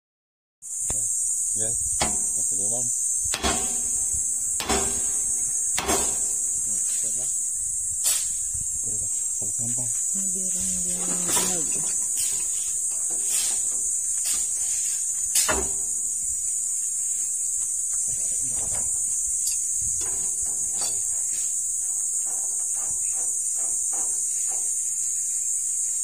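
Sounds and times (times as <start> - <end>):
insect buzz: 0.6 - 26.0
sharp metal clank: 2.0 - 8.5, 11.0 - 16.5, 18.7 - 21.6.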